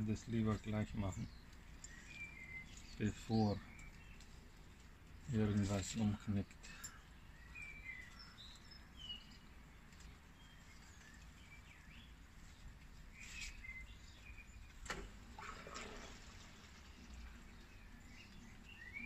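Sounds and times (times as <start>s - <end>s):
hands rustling plant leaves: 7.2s - 18.8s.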